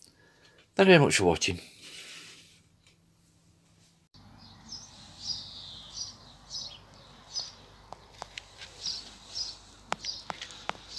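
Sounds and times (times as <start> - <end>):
faint outdoor background: 0.0 - 10.9
bird chirping: 4.2 - 10.9.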